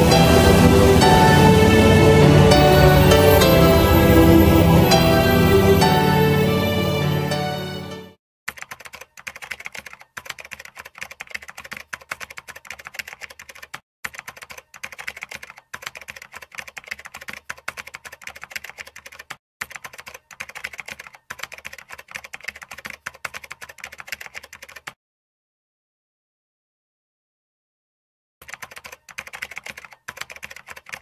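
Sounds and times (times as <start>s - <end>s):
computer keyboard typing: 8.5s - 25.0s, 28.4s - 31.0s.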